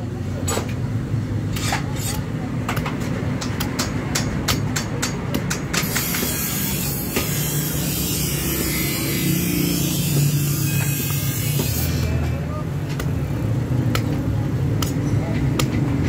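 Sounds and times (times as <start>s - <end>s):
hatchet chopping wood: 2.6s - 7.5s, 12.9s - 16.0s.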